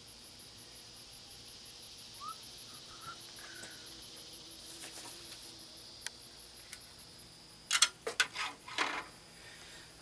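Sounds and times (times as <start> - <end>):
thin high hiss: 0.0 - 7.8
insects chirping: 0.0 - 10.0.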